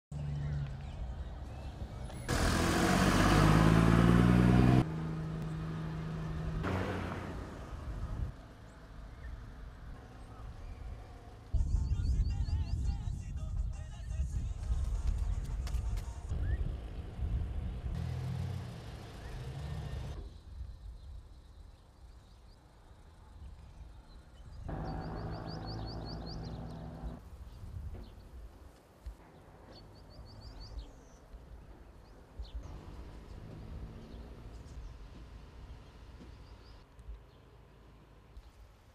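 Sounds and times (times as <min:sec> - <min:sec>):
vehicle engine rumble: 0:00.1 - 0:13.0, 0:14.7 - 0:21.2, 0:23.2 - 0:28.3, 0:29.3 - 0:38.9
vehicle engine running: 0:01.6 - 0:11.5, 0:24.7 - 0:27.2
faint engine hum: 0:22.6 - 0:27.2
high bird chirps: 0:24.7 - 0:27.2.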